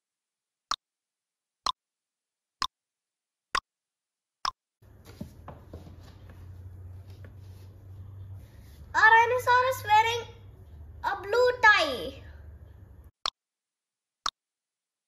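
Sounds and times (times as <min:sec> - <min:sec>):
faint room noise: 0:04.8 - 0:13.1
soft handling knocks: 0:04.9 - 0:07.6.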